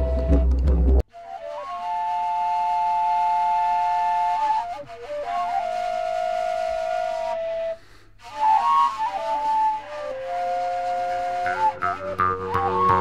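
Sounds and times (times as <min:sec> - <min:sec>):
slow solo melody: 0:09.3 - 0:13.0.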